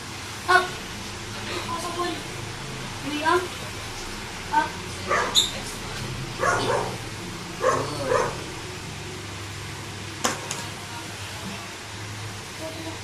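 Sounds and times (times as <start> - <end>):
dog barking: 5.1 - 5.5, 6.4 - 7.0, 7.6 - 8.5.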